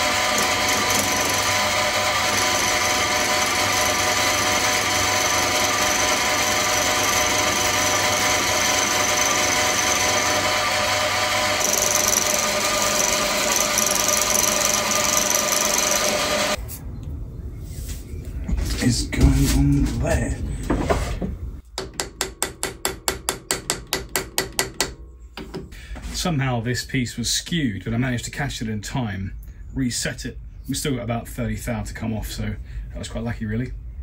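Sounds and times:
metal cutting noise: 0:00.0 - 0:16.6
milling machine whine: 0:00.0 - 0:16.6.

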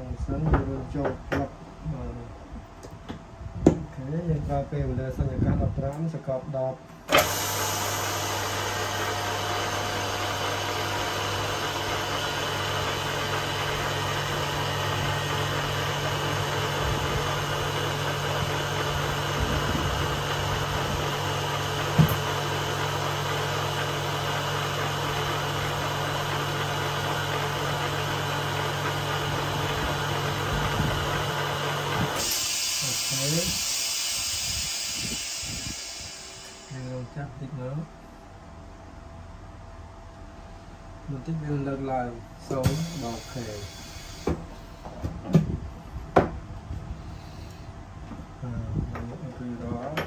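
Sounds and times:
pump humming: 0:07.1 - 0:36.8.

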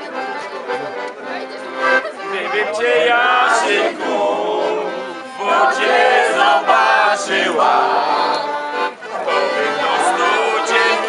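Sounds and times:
piano accordion: 0:00.0 - 0:11.0
people singing together: 0:02.3 - 0:11.0.

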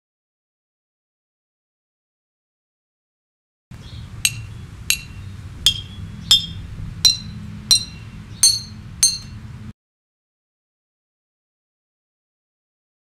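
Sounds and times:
low steady hum: 0:03.7 - 0:09.7.

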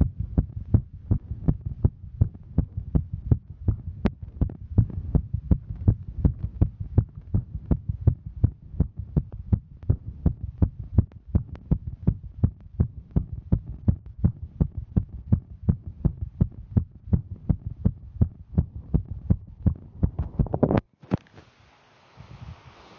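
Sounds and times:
heartbeat thumps: 0:00.0 - 0:20.8
low hum: 0:00.0 - 0:20.9.

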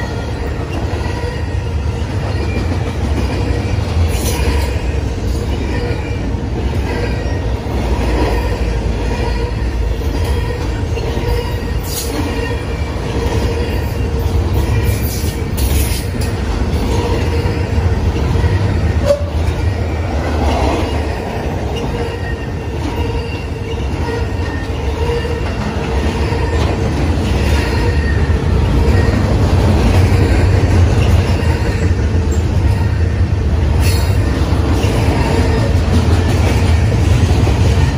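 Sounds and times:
train wheels rumbling on rails: 0:00.0 - 0:37.9
wheel squeals: 0:08.3 - 0:29.4.

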